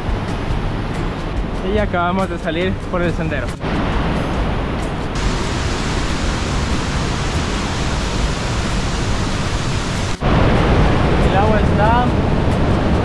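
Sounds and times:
mountain river and waterfall rushing: 3.1 - 13.0.

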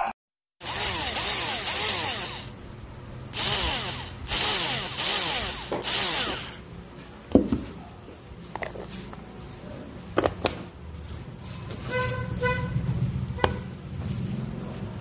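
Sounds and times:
small electric motor whirring: 0.6 - 2.6, 3.3 - 6.6.

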